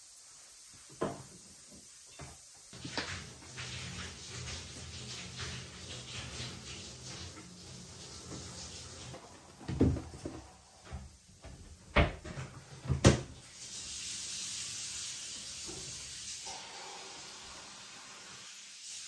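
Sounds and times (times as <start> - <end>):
steady hiss: 0.0 - 19.0
cupboard door knocking shut: 9.7 - 10.4.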